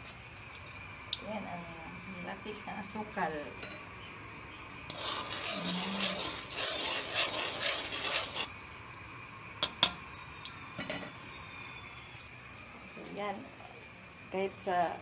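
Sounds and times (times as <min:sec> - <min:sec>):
metal tongs scraping pan: 0:04.9 - 0:08.5.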